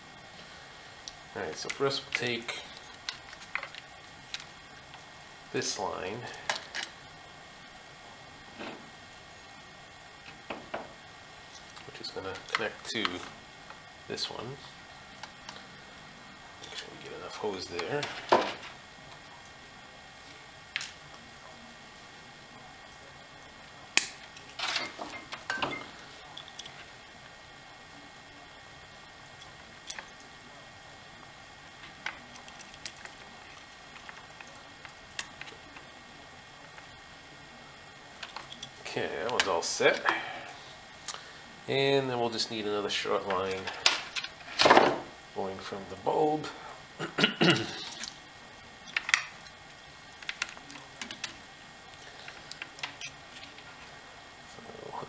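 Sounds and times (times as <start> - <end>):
low steady hiss: 0.0 - 55.0.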